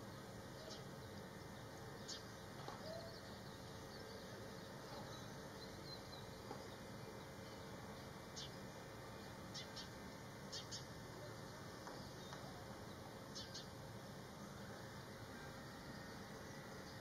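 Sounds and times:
low background hiss: 0.0 - 17.0.

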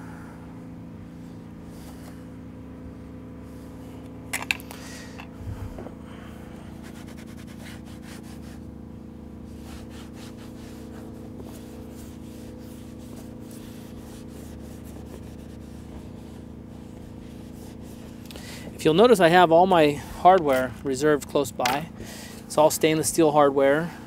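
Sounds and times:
steady low hum: 0.0 - 24.0
cloth wiping plastic: 6.8 - 8.8, 9.4 - 18.2.

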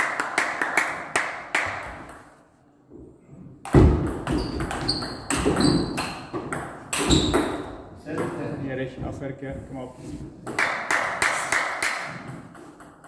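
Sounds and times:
thud: 3.7 - 4.5.

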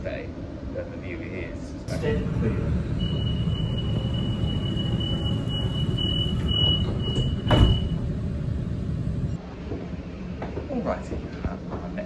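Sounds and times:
low train rumble: 0.0 - 12.0
high-pitched door warning tone: 1.9 - 8.4
train doors shutting thud: 1.9 - 8.9.

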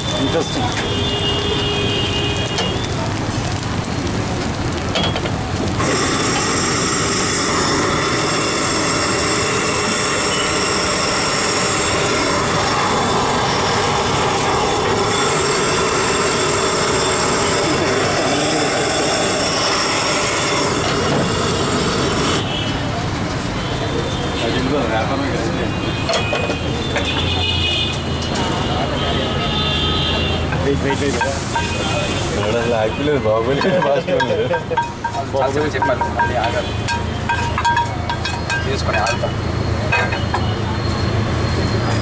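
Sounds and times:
gas stove hissing: 0.0 - 22.9, 29.7 - 42.0.

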